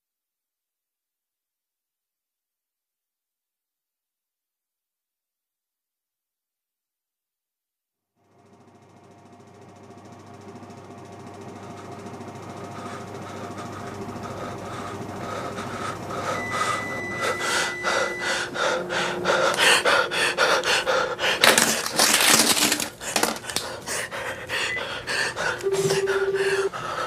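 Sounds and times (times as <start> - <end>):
person panting heavily: 11.6 - 27.0
faint steady tones: 16.0 - 21.2, 25.6 - 26.8.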